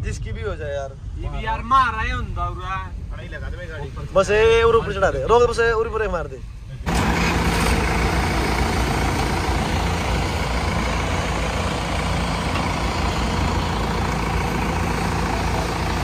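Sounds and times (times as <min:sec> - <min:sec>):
tractor diesel engines running: 0:06.8 - 0:16.0.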